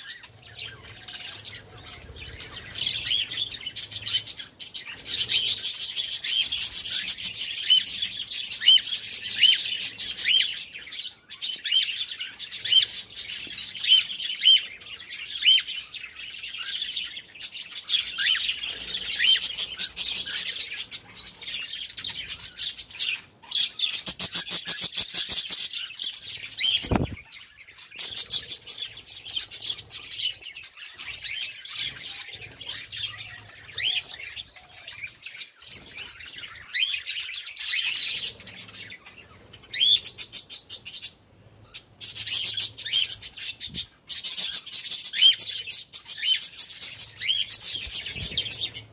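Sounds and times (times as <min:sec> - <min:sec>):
budgerigars chattering: 0:26.6 - 0:27.3.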